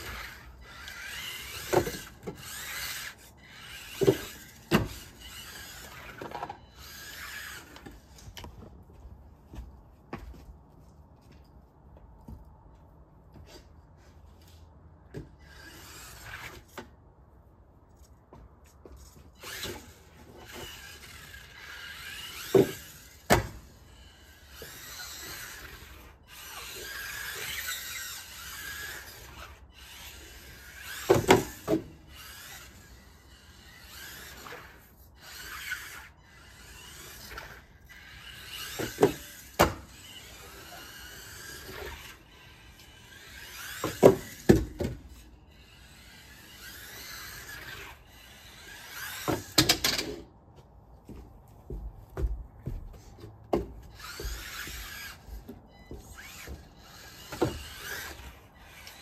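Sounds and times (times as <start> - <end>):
toy car motor whining: 0.0 - 8.5, 15.3 - 16.9, 19.0 - 50.2, 53.8 - 59.0.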